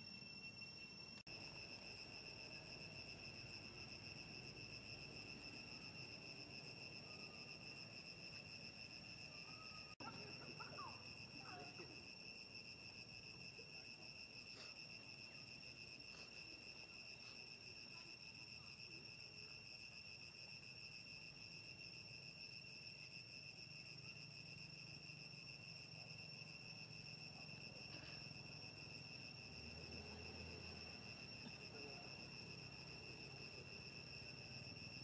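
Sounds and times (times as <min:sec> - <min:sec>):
high-pitched insect trill: 0:00.0 - 0:35.0.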